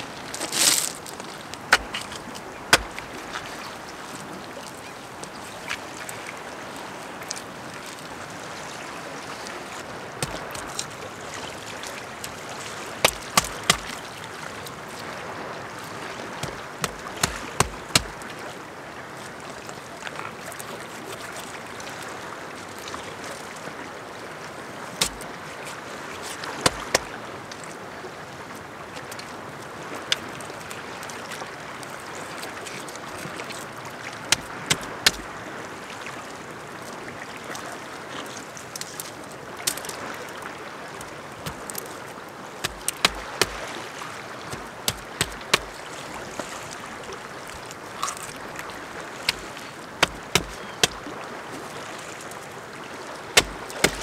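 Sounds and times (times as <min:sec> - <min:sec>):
small waves hissing: 0:00.0 - 0:54.0
stones knocking together: 0:00.3 - 0:03.1, 0:10.2 - 0:10.8, 0:13.0 - 0:14.0, 0:16.4 - 0:18.2, 0:25.0 - 0:25.2, 0:34.3 - 0:35.2, 0:41.4 - 0:41.9, 0:42.6 - 0:43.6, 0:44.5 - 0:45.8, 0:49.3 - 0:51.0, 0:53.4 - 0:54.0.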